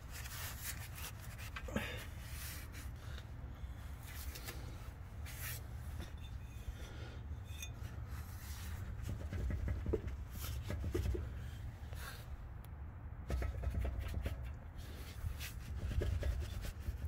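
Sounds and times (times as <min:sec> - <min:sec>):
suspension parts rubbing and clicking: 0:04.0 - 0:12.0, 0:13.2 - 0:17.0.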